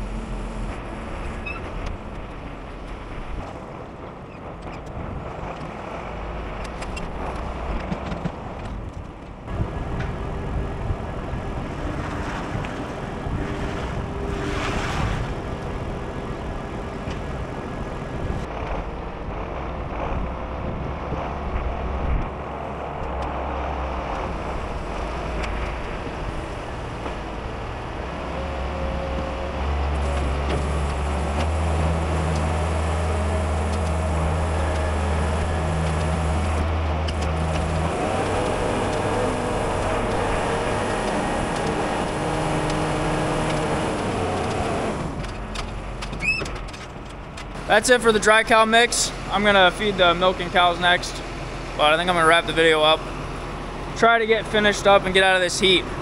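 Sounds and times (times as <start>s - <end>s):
feed mixer wagon drone: 9.5s - 46.0s
tractor engine running: 15.3s - 56.0s.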